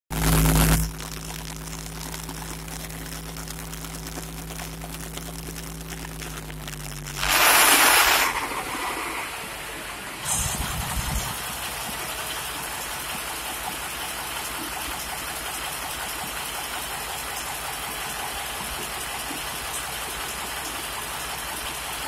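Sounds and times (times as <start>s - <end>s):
steady mechanical hum: 0.2s - 22.0s
loud hiss: 7.2s - 12.4s.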